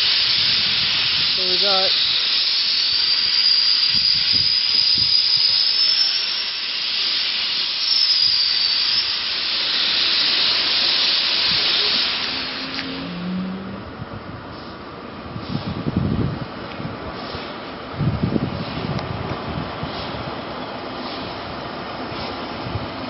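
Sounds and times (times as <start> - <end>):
steam locomotive hissing: 0.0 - 13.8, 14.4 - 16.3, 17.0 - 23.0.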